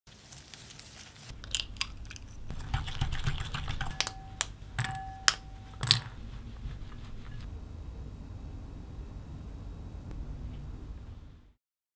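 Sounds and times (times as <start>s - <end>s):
utensils clicking against glass bowl: 1.4s - 6.2s
scraping in glass bowl: 2.4s - 7.5s
glass bowl ringing: 3.8s - 6.2s.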